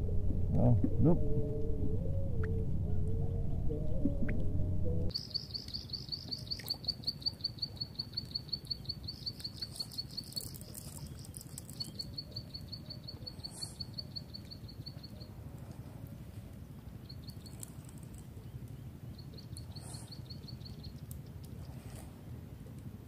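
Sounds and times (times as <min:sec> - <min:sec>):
low rumble: 0:00.0 - 0:05.1.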